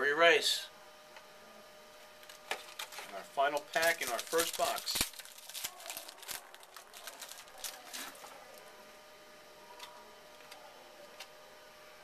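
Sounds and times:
wrapper and cards crinkling: 0:02.2 - 0:08.6.

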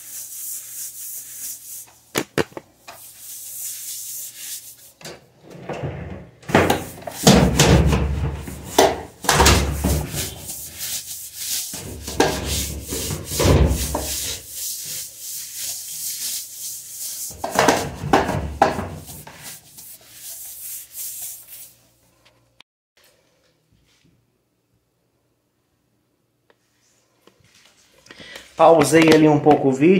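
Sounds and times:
brush scrubbing wet tiled floor: 0:00.0 - 0:05.0, 0:06.5 - 0:21.9.

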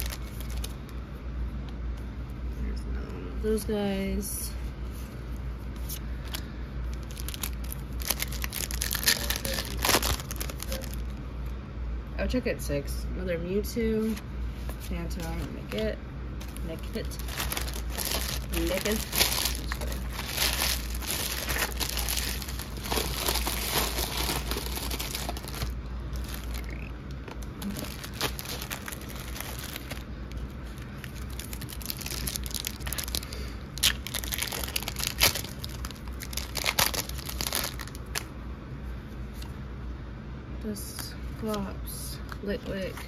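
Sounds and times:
foil wrappers crinkling: 0:00.0 - 0:00.8, 0:06.0 - 0:11.2, 0:16.4 - 0:38.3
steady low hum: 0:00.0 - 0:43.0.

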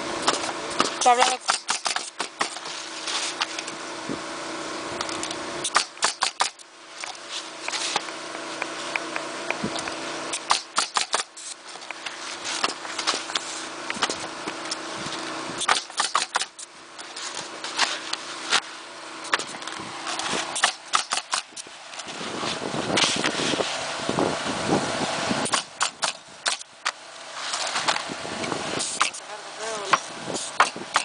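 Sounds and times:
steady mechanical hum: 0:00.0 - 0:31.0
nail guns firing: 0:00.2 - 0:02.7, 0:05.6 - 0:06.6, 0:10.3 - 0:11.4, 0:15.6 - 0:16.6, 0:20.6 - 0:21.6, 0:25.4 - 0:27.0, 0:28.8 - 0:29.2, 0:29.9 - 0:31.0.

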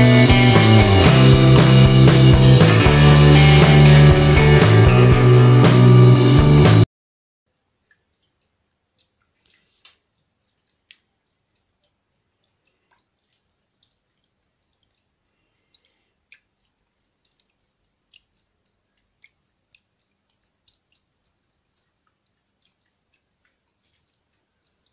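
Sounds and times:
water dripping into fountain basin: 0:07.5 - 0:24.9.

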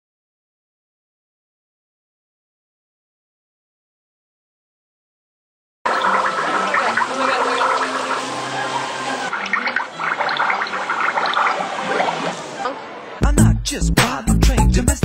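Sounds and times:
fountain water splashing: 0:05.9 - 0:12.6.

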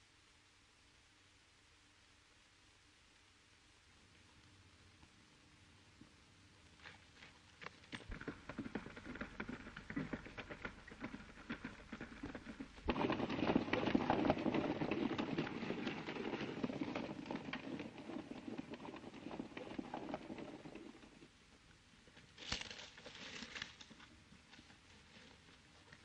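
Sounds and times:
galloping horses hoofbeats: 0:07.6 - 0:21.4.

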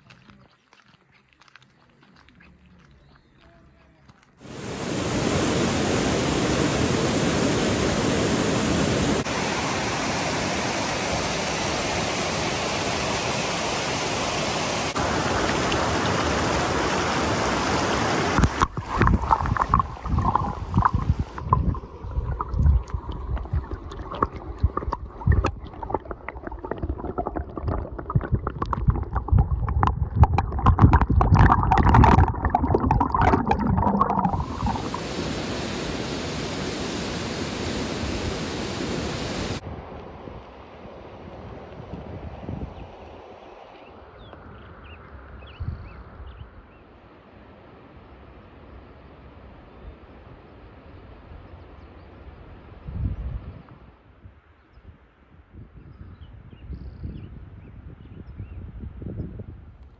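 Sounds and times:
creek rushing over rocks: 0:04.4 - 0:39.6
underwater gurgling and splashing: 0:18.2 - 0:36.3.

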